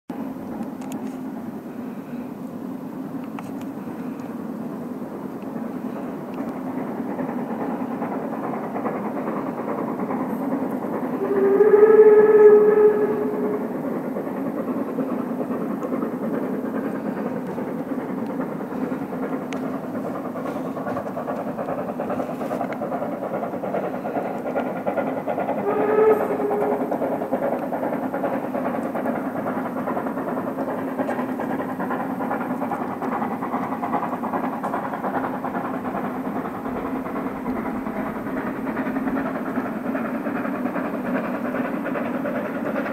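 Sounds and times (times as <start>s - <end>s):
steam train rumbling: 0.1s - 42.9s
steam train whistle: 11.1s - 14.2s, 25.5s - 28.0s.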